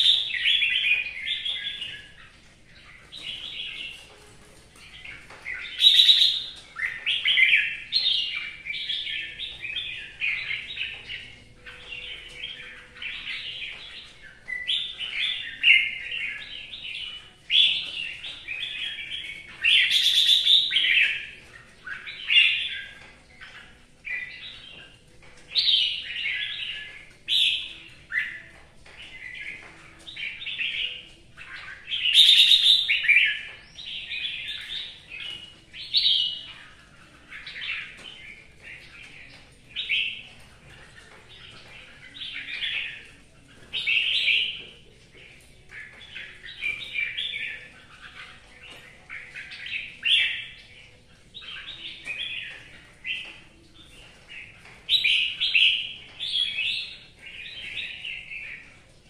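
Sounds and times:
bird singing warbling phrases: 0:00.0 - 0:59.0.

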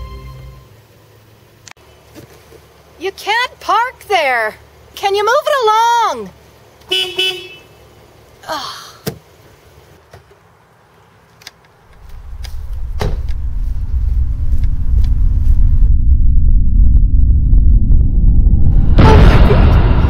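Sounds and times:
low rumbling drone: 0:11.9 - 0:20.0.

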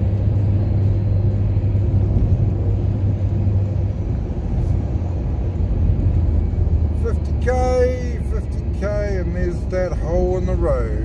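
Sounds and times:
car driving rumble inside cabin: 0:00.0 - 0:11.0.

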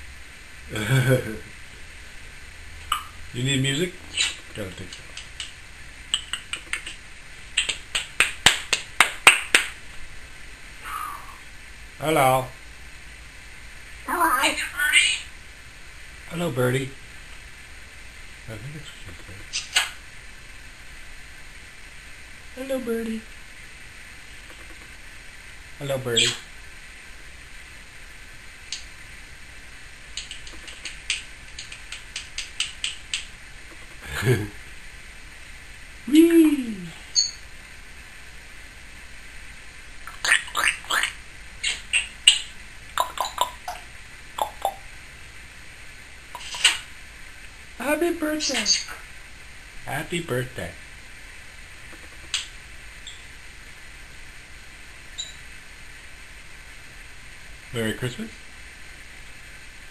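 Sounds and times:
parrot clicking: 0:04.1 - 0:09.8, 0:24.5 - 0:24.9, 0:30.2 - 0:34.0, 0:40.1 - 0:43.8, 0:44.4 - 0:44.8, 0:51.9 - 0:53.2.

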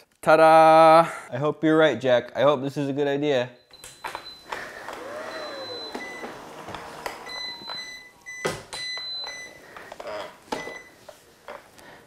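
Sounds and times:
robot vacuum whirr: 0:04.5 - 0:07.8.

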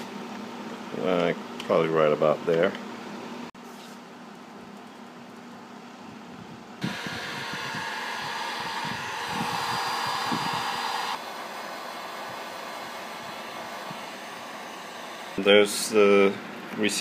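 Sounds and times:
heat gun blowing with fan whine: 0:06.0 - 0:17.0.

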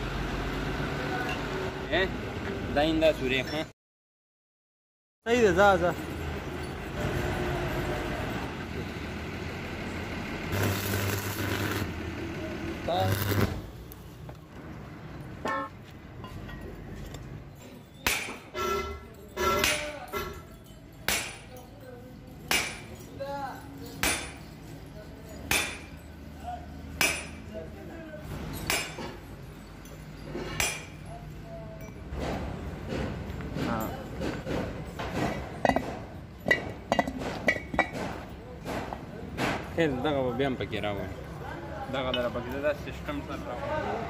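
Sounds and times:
vehicle engine humming: 0:06.0 - 0:17.5
sledgehammer striking steel: 0:18.0 - 0:18.7, 0:19.4 - 0:20.0, 0:21.0 - 0:21.5, 0:22.5 - 0:23.0, 0:24.0 - 0:24.5, 0:25.4 - 0:26.0, 0:27.0 - 0:27.5, 0:28.6 - 0:29.2, 0:30.3 - 0:31.0.

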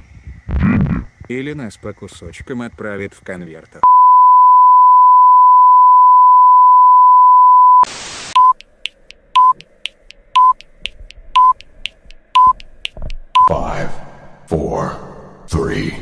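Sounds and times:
short beeps: 0:03.8 - 0:08.6, 0:09.4 - 0:09.6, 0:10.4 - 0:10.6, 0:11.4 - 0:11.6, 0:12.4 - 0:12.6
static hiss burst: 0:07.8 - 0:09.1
faint ticks: 0:08.5 - 0:13.4.

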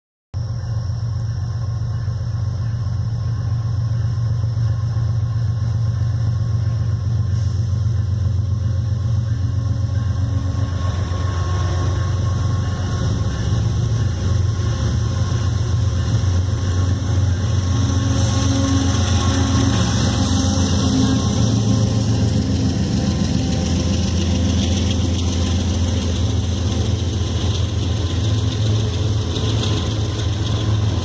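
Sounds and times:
diesel locomotive engine drone: 0:00.4 - 0:31.0
train wheel and rail noise: 0:00.4 - 0:31.0.

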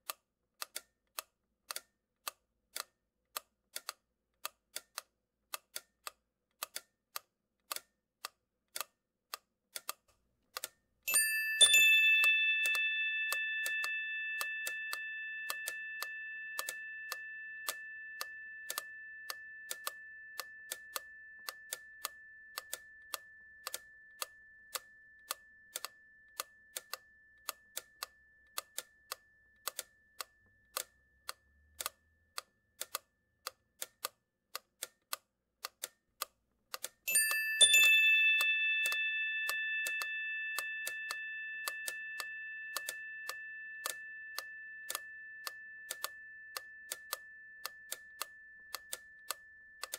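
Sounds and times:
clock ticking: 0:00.0 - 0:49.9
bell ringing: 0:11.1 - 0:26.7, 0:37.1 - 0:49.9.

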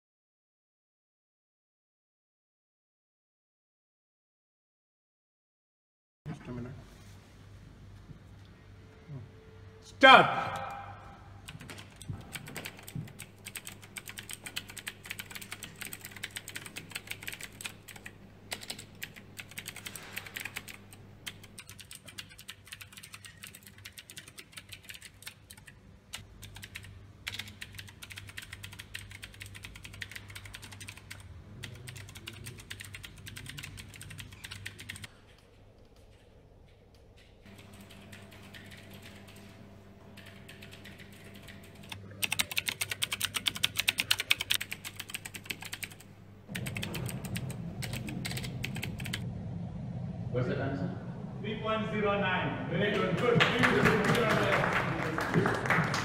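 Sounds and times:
steady low hum: 0:06.3 - 0:56.0
fast typing on keyboard: 0:11.4 - 0:35.1, 0:37.4 - 0:49.2.

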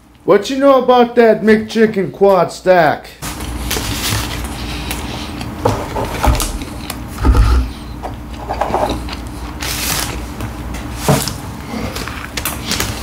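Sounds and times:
paper wrapping rustling: 0:03.2 - 0:05.1.

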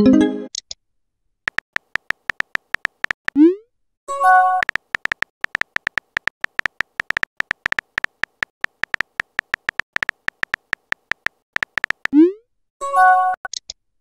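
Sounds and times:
beep-like typing clicks: 0:01.5 - 0:03.5, 0:04.5 - 0:12.2.

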